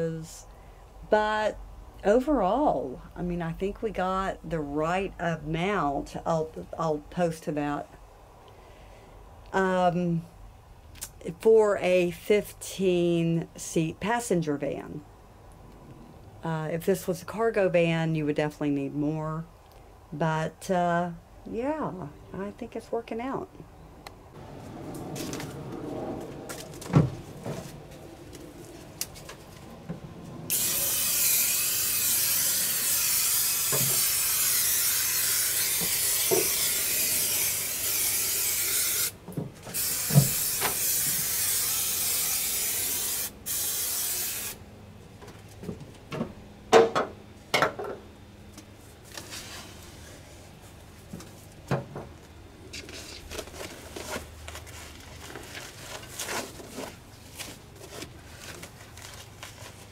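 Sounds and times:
aerosol can spraying: 0:30.5 - 0:44.6
rustling: 0:52.7 - 0:59.9.

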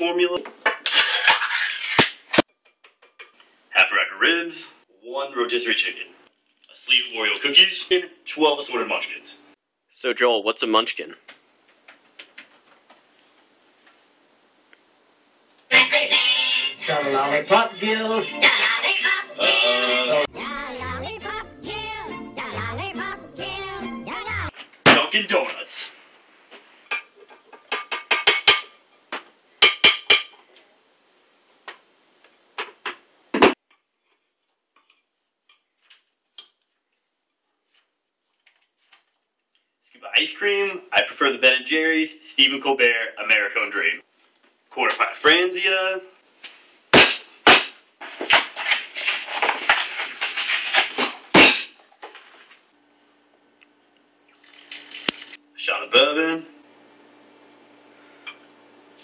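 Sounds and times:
cardboard ripping and crinkling: 0:48.2 - 0:51.6.

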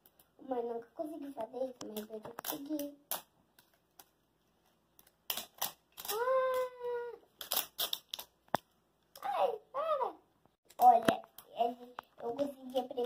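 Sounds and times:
plastic wrapping crackling: 0:01.6 - 0:08.7, 0:10.7 - 0:13.0.

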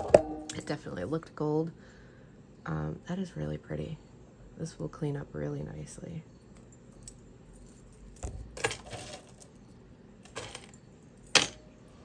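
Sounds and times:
metal jewelry clinking: 0:06.4 - 0:11.8.

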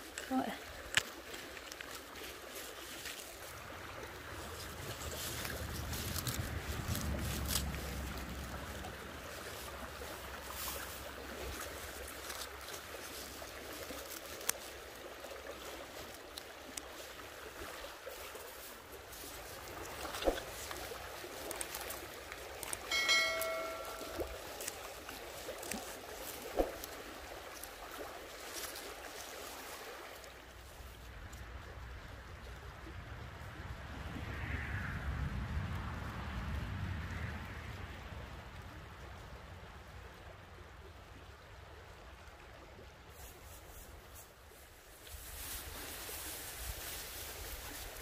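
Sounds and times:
stream running: 0:00.0 - 0:34.3, 0:36.0 - 0:48.0
wind rumble on microphone: 0:03.5 - 0:11.6, 0:30.7 - 0:40.6
short steady tone: 0:22.9 - 0:24.4.

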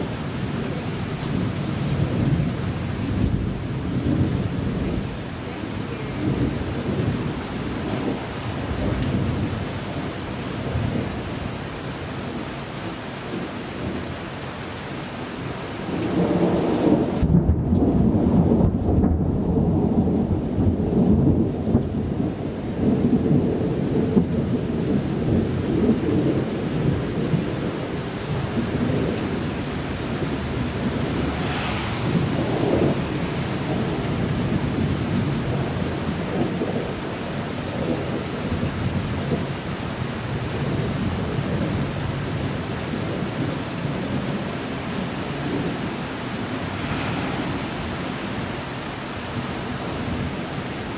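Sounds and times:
thunder rumbling: 0:15.9 - 0:39.5, 0:40.4 - 0:50.9
sharp thunder crackle: 0:25.2 - 0:36.9, 0:44.2 - 0:50.5
rain hissing: 0:26.7 - 0:50.9.

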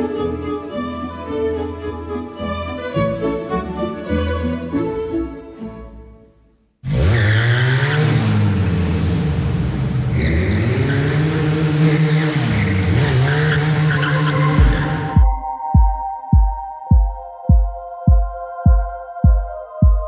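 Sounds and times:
motorcycle engine revving: 0:06.8 - 0:15.3
tyre squeal: 0:10.1 - 0:15.2.

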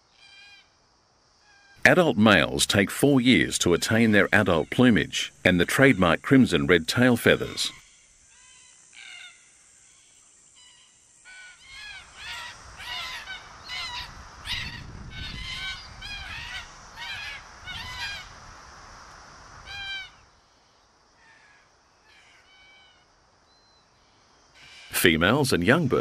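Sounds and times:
cockatoos calling: 0:10.7 - 0:18.4.

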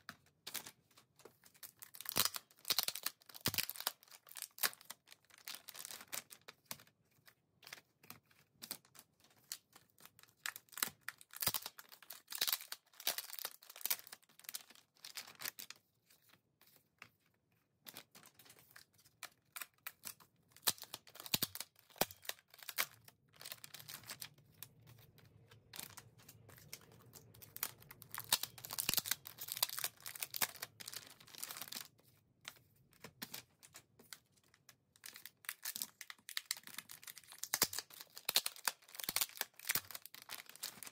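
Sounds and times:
plastic pouch crinkling and tearing: 0:01.6 - 0:06.4, 0:09.5 - 0:15.8, 0:19.2 - 0:31.9, 0:34.4 - 0:40.9.

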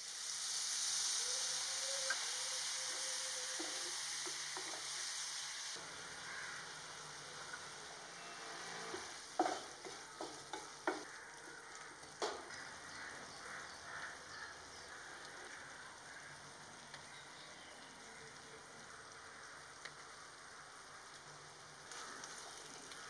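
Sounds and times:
masala sizzling in a pan: 0:00.0 - 0:23.0
wooden spatula scraping a pan: 0:08.2 - 0:11.0.

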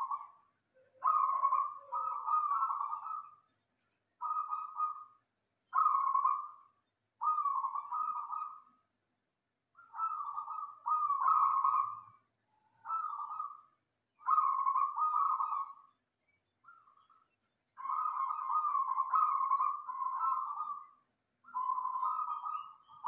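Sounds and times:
dove cooing: 0:00.0 - 0:03.5, 0:04.2 - 0:08.8, 0:09.8 - 0:15.9, 0:17.8 - 0:23.0.

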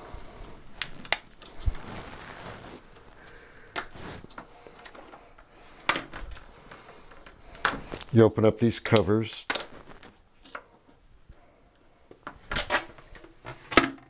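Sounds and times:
plastic rubbing on porcelain: 0:00.6 - 0:04.9.

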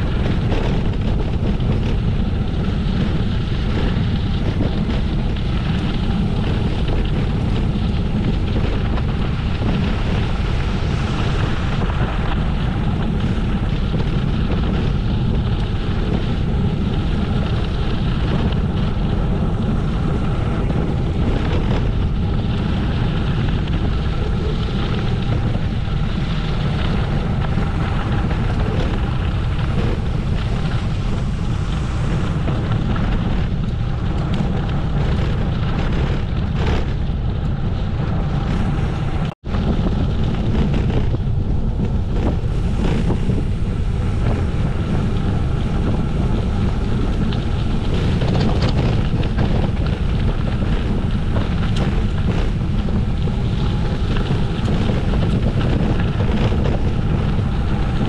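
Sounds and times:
bicycle tyre noise: 0:00.0 - 0:58.0
wind rumble on microphone: 0:00.0 - 0:58.0.

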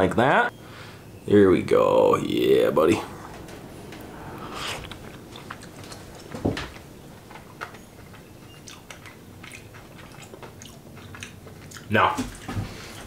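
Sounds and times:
short loud low sound: 0:02.9 - 0:06.6
man chewing food: 0:03.1 - 0:13.0
wet mouth clicks: 0:08.6 - 0:11.9.

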